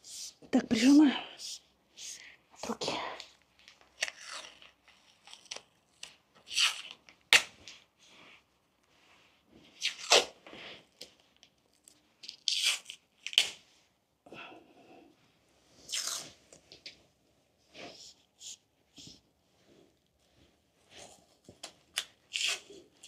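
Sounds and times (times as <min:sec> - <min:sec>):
adhesive tape ripping: 0:05.3 - 0:07.5, 0:12.4 - 0:13.6.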